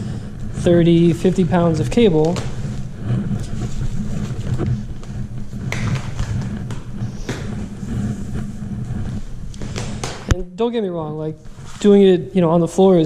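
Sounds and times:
cable knocking on floor: 2.1s - 2.8s, 3.6s - 7.7s, 9.6s - 10.4s.

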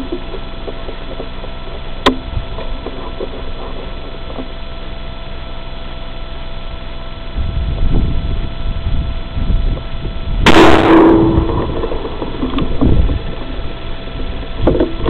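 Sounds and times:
electrical hum: 0.0s - 15.0s
low rumble: 6.8s - 15.0s.

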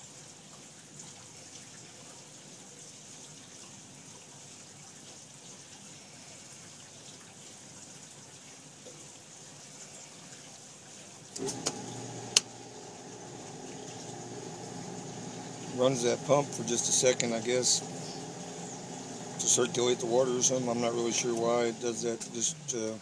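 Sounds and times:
pump motor humming: 11.3s - 23.0s
water filling hiss: 11.3s - 23.0s.

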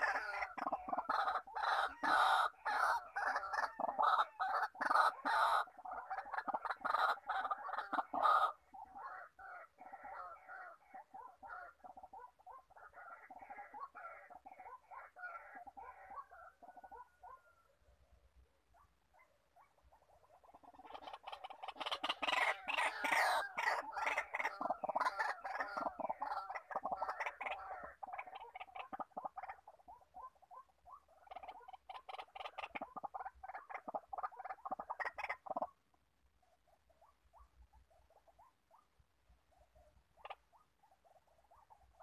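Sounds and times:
waterhen calling harsh notes: 0.0s - 10.7s, 20.6s - 29.6s.

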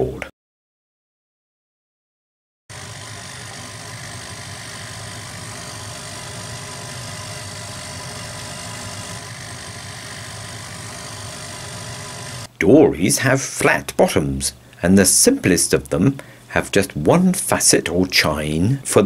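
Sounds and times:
laser cutter hum and whir: 2.7s - 12.5s.

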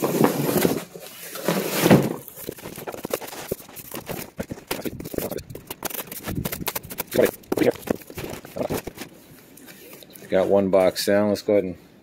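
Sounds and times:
cardboard boxes scraping and knocking: 0.0s - 9.1s.

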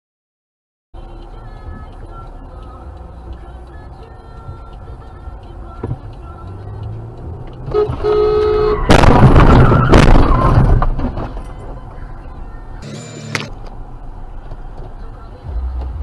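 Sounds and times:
car horn: 7.6s - 10.5s
car collision crunch: 8.9s - 11.6s.

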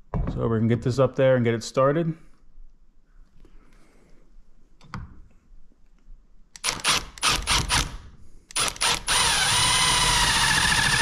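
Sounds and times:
impact driver driving screw: 6.6s - 11.0s.

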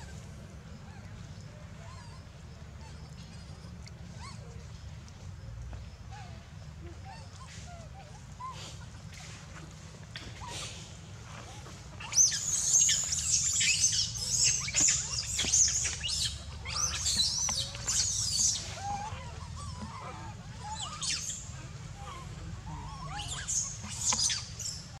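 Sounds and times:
low monkey calls: 0.0s - 25.0s
baby monkey screaming: 12.0s - 24.8s.

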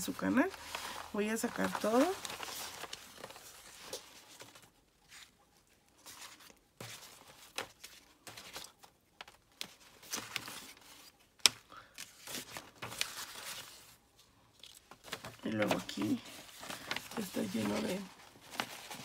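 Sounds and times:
paper rustling and sliding: 0.3s - 5.4s, 12.0s - 14.0s, 14.6s - 19.0s.

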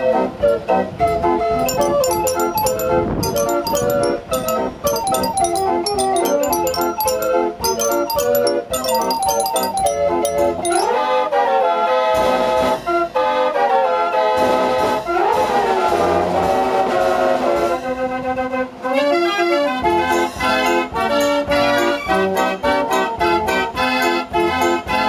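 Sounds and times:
fair organ playing a tune: 1.6s - 11.0s.

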